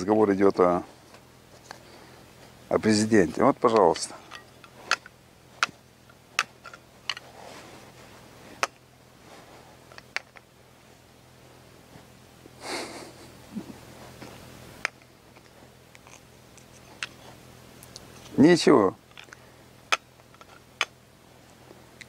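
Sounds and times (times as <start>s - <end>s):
nutcracker clicking on walnut shell: 19.1s - 21.0s.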